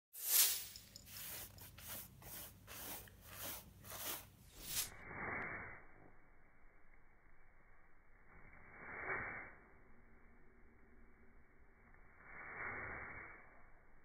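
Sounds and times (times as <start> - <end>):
paintbrush scraping rough surface: 0.1 - 5.4.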